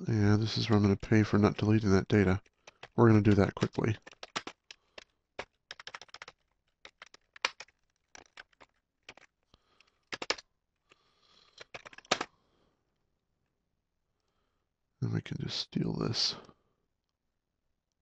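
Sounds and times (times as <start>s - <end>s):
computer keyboard typing: 1.4s - 10.4s, 11.4s - 12.3s.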